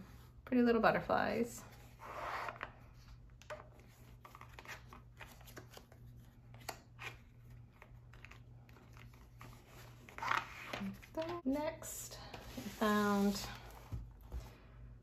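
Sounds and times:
playing cards clicking and rustling: 3.3s - 11.4s.

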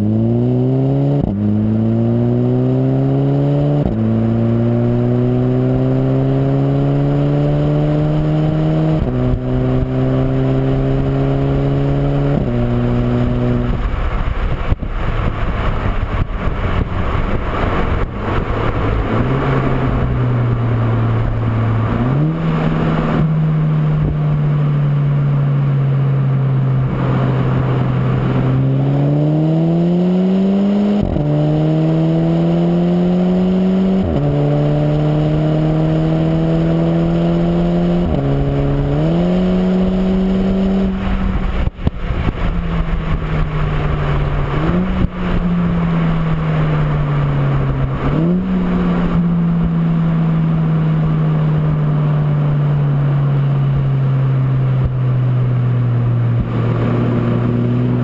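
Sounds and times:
car exhaust while accelerating: 0.0s - 58.0s.

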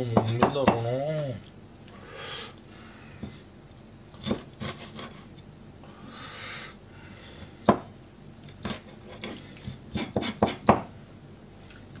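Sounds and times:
knife tapping cutting board: 10.2s - 10.9s.

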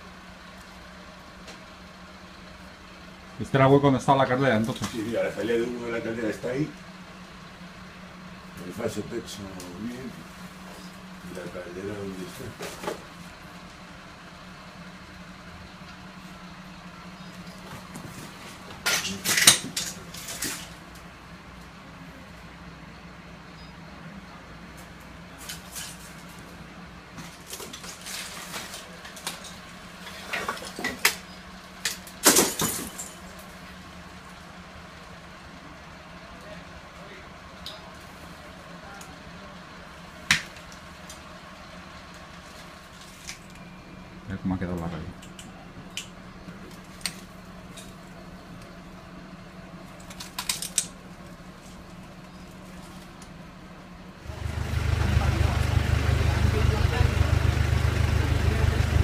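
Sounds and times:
debris and glass crunching: 18.9s - 20.8s, 27.2s - 31.1s, 31.8s - 33.5s.

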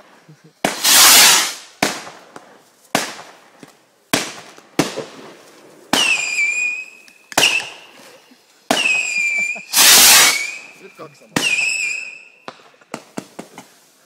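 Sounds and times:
firework rushing burst: 0.6s - 2.2s, 8.7s - 10.8s
whistling firework shots: 0.6s - 3.4s, 5.8s - 8.0s, 8.7s - 13.5s
firework bangs: 0.6s - 8.0s, 8.7s - 13.7s.

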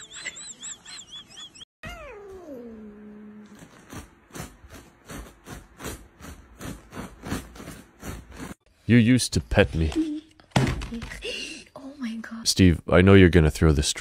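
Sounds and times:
cat yowling: 1.8s - 3.2s.

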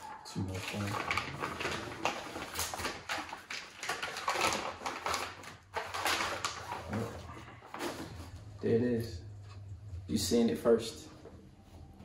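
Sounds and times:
plastic bag rustling: 0.4s - 8.4s.

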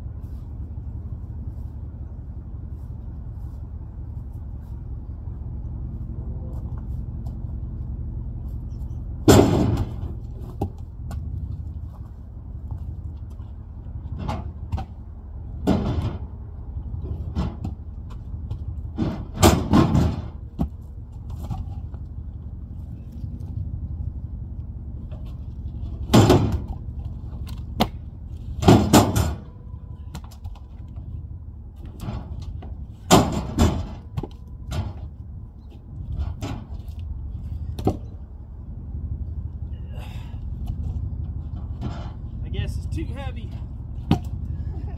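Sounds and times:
low steady rumble: 0.0s - 44.9s
logs thudding onto gravel: 9.2s - 16.4s, 17.1s - 22.0s, 25.0s - 31.0s, 31.8s - 35.2s, 36.0s - 38.2s, 44.0s - 44.5s.

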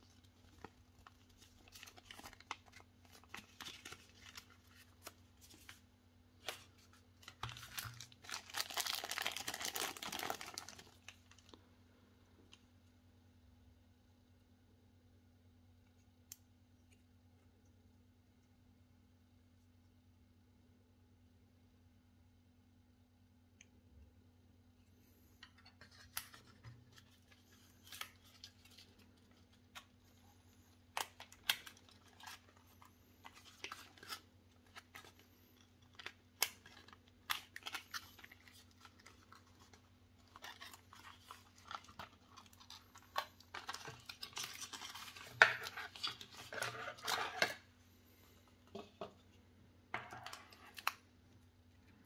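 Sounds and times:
packaging crinkling: 0.0s - 5.8s, 6.4s - 11.6s, 25.8s - 47.7s
faint low hum: 9.3s - 52.0s.

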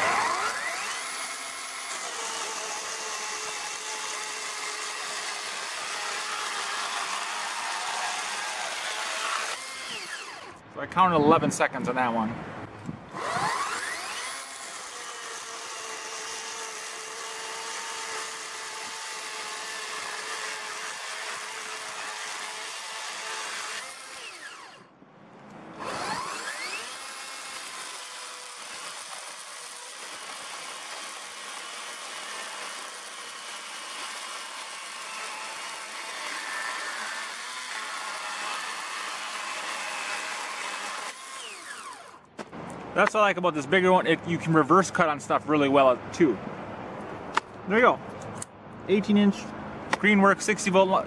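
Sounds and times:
electric chainsaw cutting wood: 0.0s - 10.6s, 13.1s - 24.9s, 25.7s - 42.8s.

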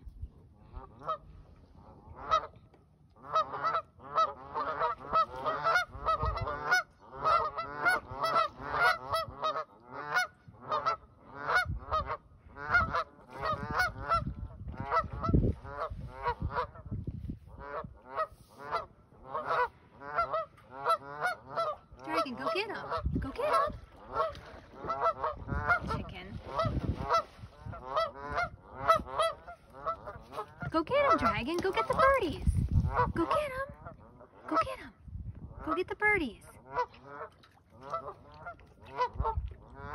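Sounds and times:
geese honking: 3.2s - 14.3s, 17.6s - 33.5s.

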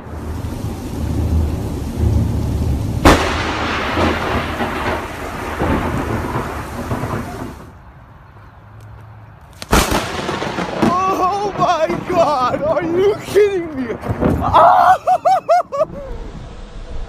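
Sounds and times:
thunder crack and rumble: 0.0s - 7.8s, 9.7s - 14.8s.

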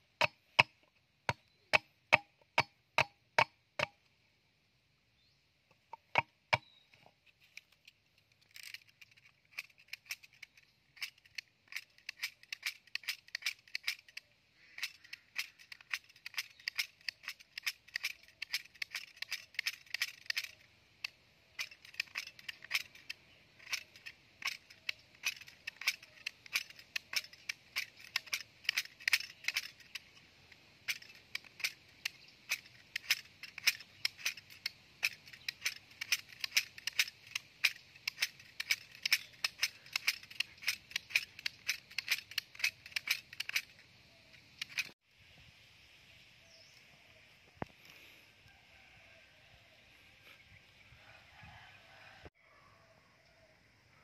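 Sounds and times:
knife scraping bamboo: 5.9s - 45.0s.

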